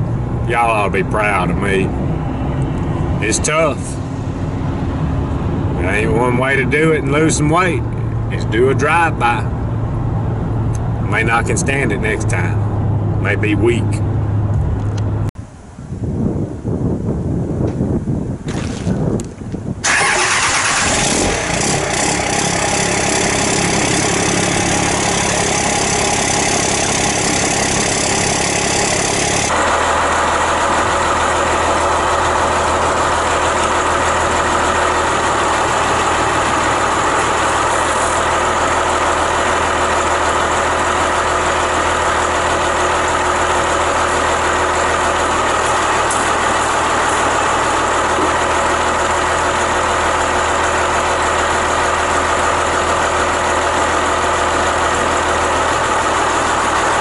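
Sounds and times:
pickup engine starting and idling: 0:19.7 - 0:57.0.

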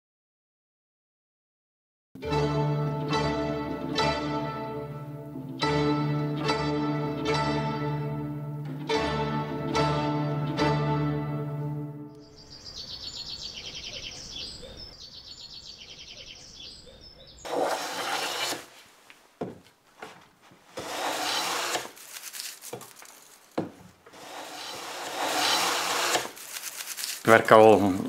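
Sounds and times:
small bird trilling: 0:12.2 - 0:17.5
hand plane shaving wood: 0:17.5 - 0:18.9, 0:20.0 - 0:27.2.

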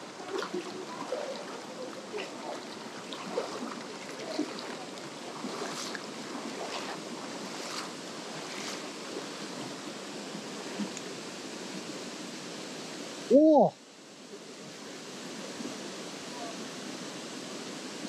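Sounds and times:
water splashes: 0:00.0 - 0:13.7
stream water rushing over rocks: 0:00.0 - 0:18.0.

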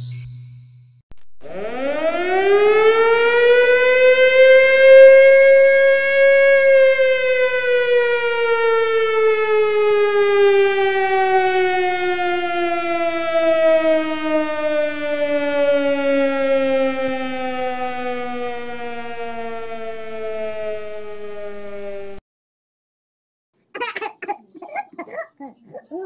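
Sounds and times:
siren wailing: 0:01.4 - 0:22.2.

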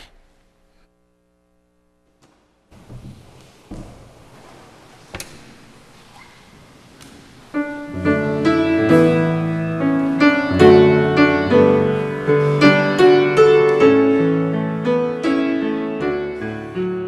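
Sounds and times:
piano playing chords and melody: 0:07.6 - 0:17.0.

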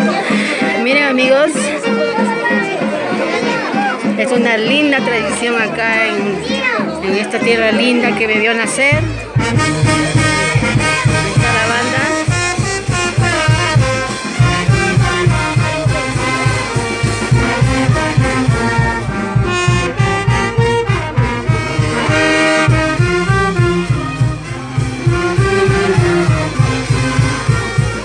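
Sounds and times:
brass band playing: 0:00.0 - 0:28.0
low drum beat: 0:08.8 - 0:28.0.

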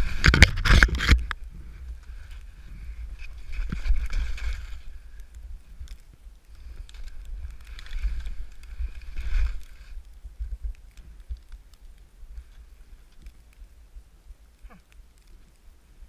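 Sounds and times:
wind rumble on microphone: 0:00.0 - 0:16.0
skis swishing through powder snow: 0:01.5 - 0:05.0, 0:06.6 - 0:10.3.

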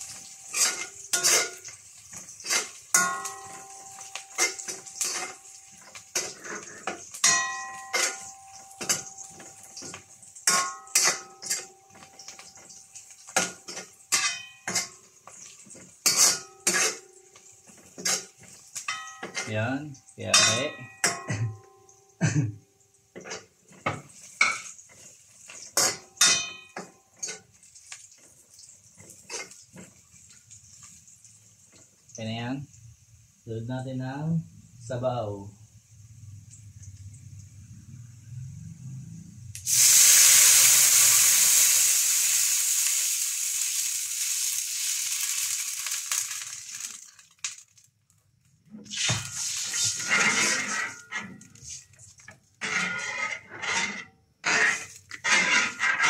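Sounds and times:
metal spatula scraping wok: 0:00.0 - 0:12.6, 0:13.3 - 0:19.6, 0:23.2 - 0:27.6, 0:29.0 - 0:30.0, 0:48.8 - 0:56.0.

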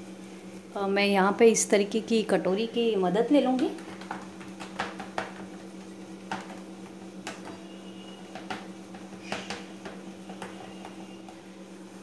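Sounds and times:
steady low hum: 0:00.0 - 0:12.0
steel bowl patting mixture: 0:03.3 - 0:11.5.

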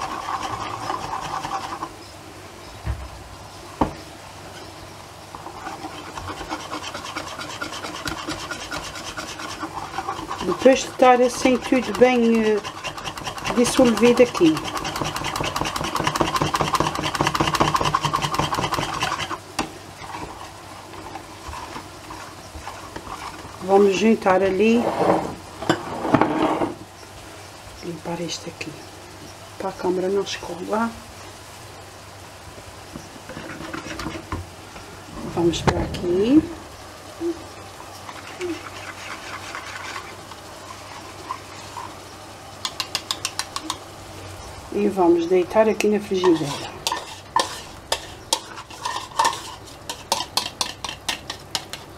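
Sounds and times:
wire whisk beating batter: 0:00.0 - 0:01.9, 0:05.4 - 0:19.4, 0:42.6 - 0:43.8, 0:46.1 - 0:51.9.

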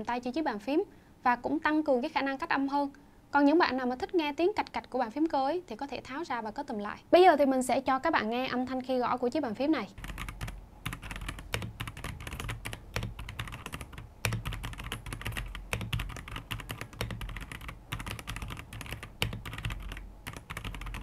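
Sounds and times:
fast typing on mechanical keyboard: 0:10.0 - 0:21.0.

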